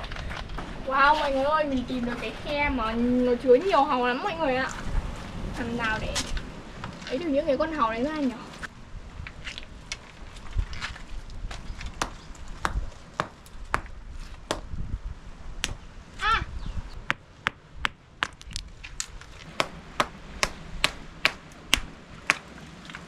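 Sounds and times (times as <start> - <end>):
stone knocking on rock: 12.0 - 13.9.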